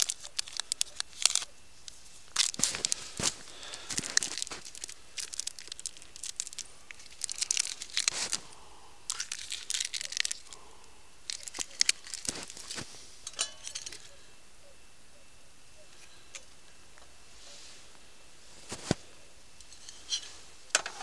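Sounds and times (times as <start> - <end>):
packaging crinkling and tearing: 0.0 - 8.5, 9.1 - 10.6, 11.3 - 12.9.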